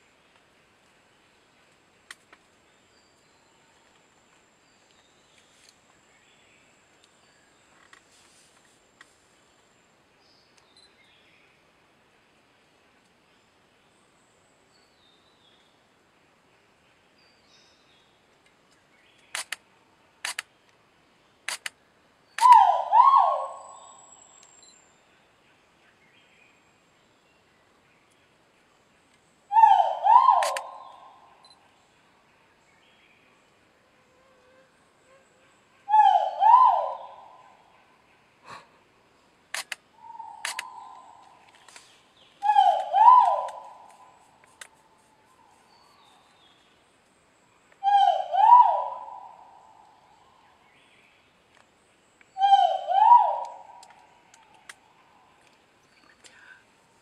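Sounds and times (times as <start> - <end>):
camera shutter clicks: 19.3 - 19.6, 20.2 - 20.5, 21.5 - 21.8, 30.4 - 30.7, 39.5 - 39.8, 40.4 - 40.7
bird whistling call: 22.4 - 24.1, 29.5 - 31.1, 35.9 - 37.3, 42.4 - 43.9, 47.8 - 49.4, 52.4 - 53.7.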